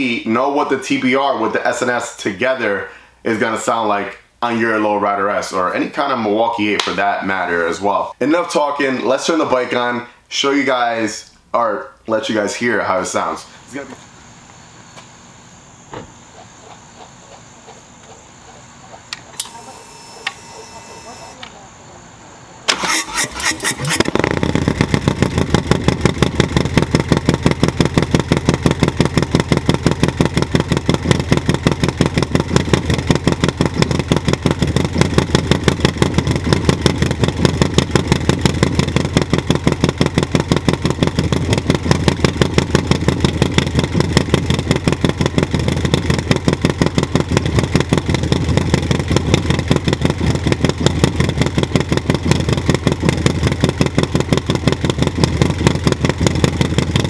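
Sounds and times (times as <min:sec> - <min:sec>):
motorcycle engine idling: 0:24.0 - 0:57.0.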